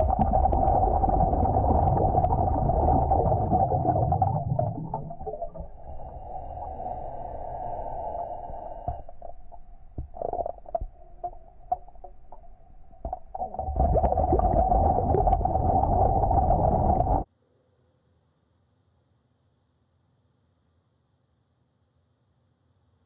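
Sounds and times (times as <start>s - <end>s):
clicks and bubbling: 0.0s - 6.7s, 8.9s - 17.3s
water churning: 0.0s - 17.2s
muffled underwater rumble: 0.0s - 17.3s.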